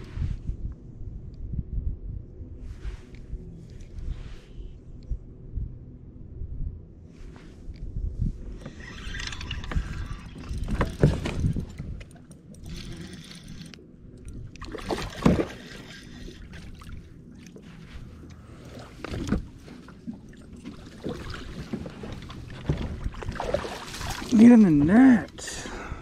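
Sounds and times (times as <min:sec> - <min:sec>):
water lapping at hull: 0:08.6 - 0:25.8.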